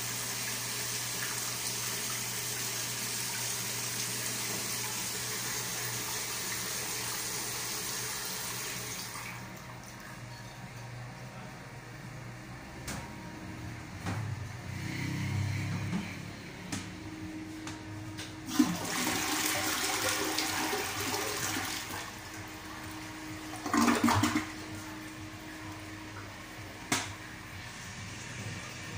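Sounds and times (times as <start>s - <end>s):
toilet flushing water rush: 0.0s - 10.0s, 18.4s - 28.9s.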